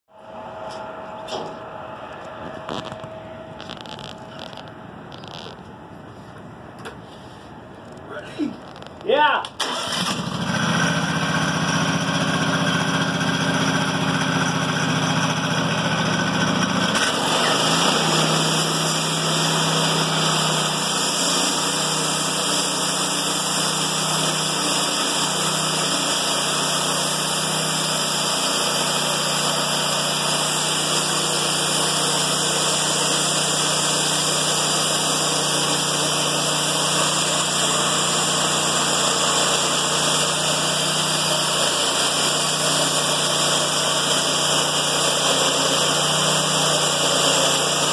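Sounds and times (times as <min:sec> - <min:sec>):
sawmill engine running: 0:09.6 - 0:47.9
saw blade cutting wood: 0:16.9 - 0:47.9.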